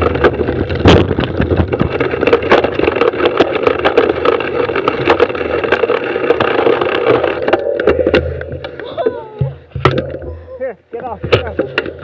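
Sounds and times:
bike rattling: 0:00.0 - 0:12.0
bike tyres rolling over dirt: 0:00.0 - 0:12.0
sharp knocks from bumps: 0:11.0 - 0:12.0.

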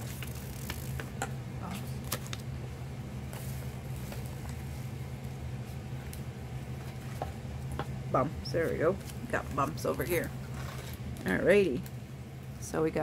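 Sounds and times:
wrapper crinkling: 0:00.0 - 0:01.0
steady low hum: 0:00.0 - 0:13.0.

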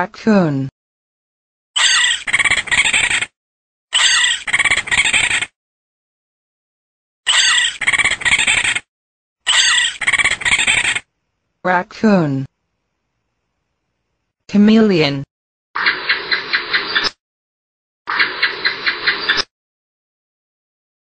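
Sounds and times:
raccoon calls: 0:01.8 - 0:03.3, 0:03.9 - 0:05.5, 0:07.3 - 0:08.8, 0:09.5 - 0:11.1.

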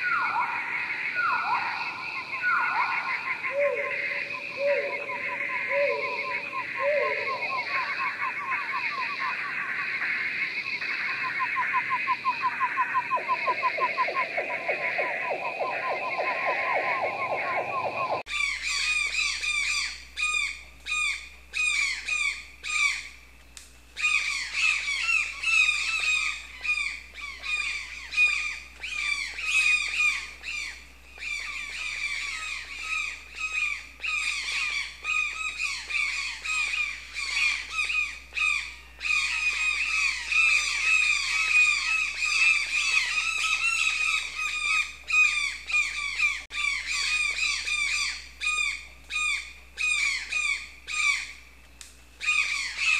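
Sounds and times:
flock of birds squawking: 0:00.0 - 0:18.9.

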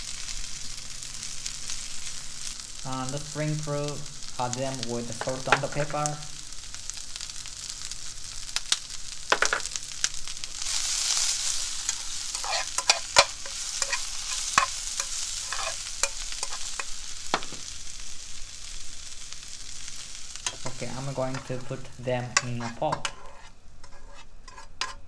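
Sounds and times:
vegetables sizzling in a frying pan: 0:00.0 - 0:25.0
spatula scraping and knocking pan: 0:11.8 - 0:17.7, 0:20.4 - 0:25.0.

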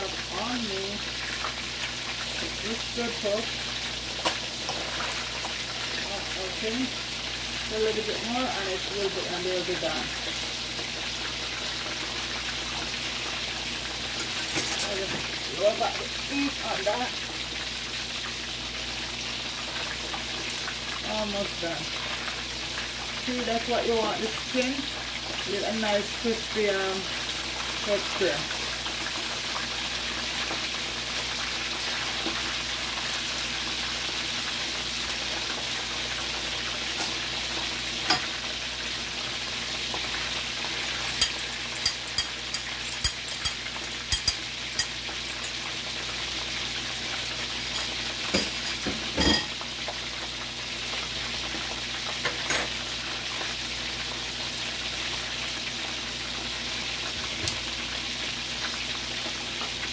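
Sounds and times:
chicken sizzling in hot oil: 0:00.0 - 0:59.9.

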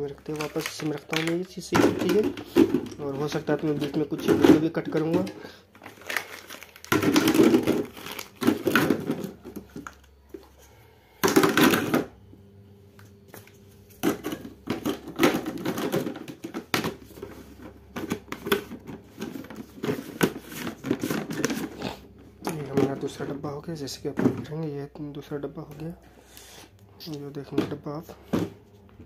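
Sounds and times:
plastic parts clattering: 0:00.0 - 0:10.1, 0:11.2 - 0:12.1, 0:13.4 - 0:21.8, 0:22.4 - 0:23.4.

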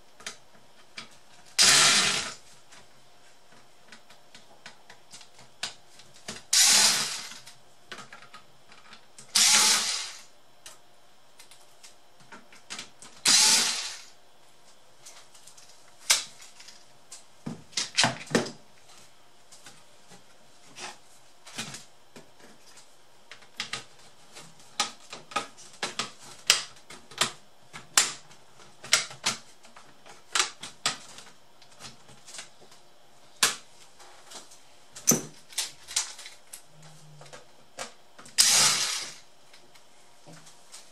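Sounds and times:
harsh bursts of noise: 0:06.5 - 0:07.4, 0:09.3 - 0:10.3, 0:13.2 - 0:14.1, 0:38.4 - 0:39.2.

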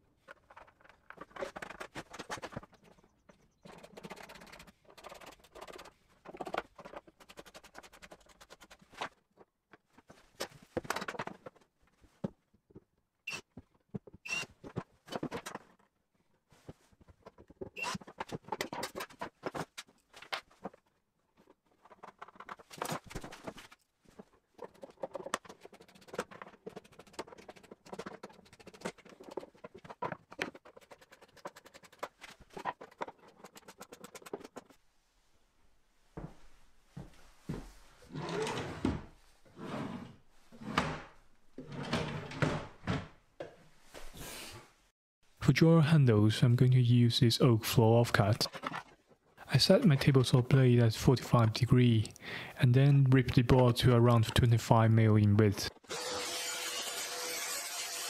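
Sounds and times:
scratching and small clicks: 0:00.2 - 0:09.2, 0:21.4 - 0:34.8.

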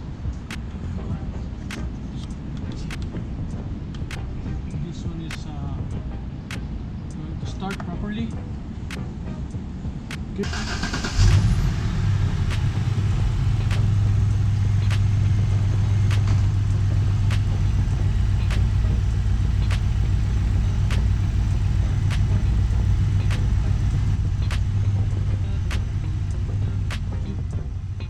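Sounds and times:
car engine starting and idling: 0:10.1 - 0:28.0.

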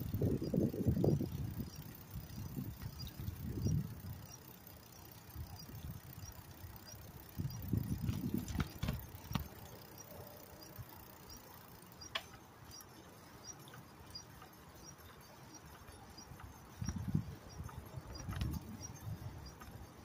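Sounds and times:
wind buffeting microphone: 0:00.0 - 0:04.4, 0:05.3 - 0:09.5, 0:13.5 - 0:20.0
bike clicks and knocks: 0:00.0 - 0:20.0
faint even ticking: 0:00.0 - 0:20.0.

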